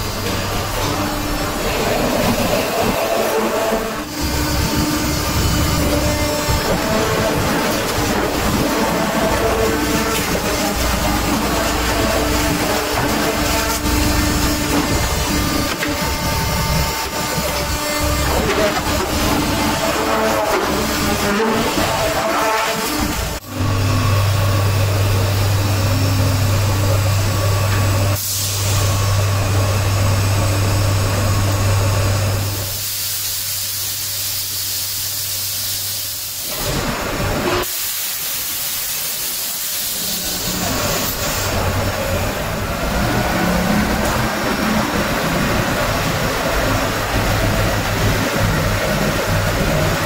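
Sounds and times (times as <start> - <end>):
machine noise: 0.0 - 50.0
machinery humming: 0.0 - 50.0
loud hiss of air: 28.2 - 28.9, 32.5 - 42.7.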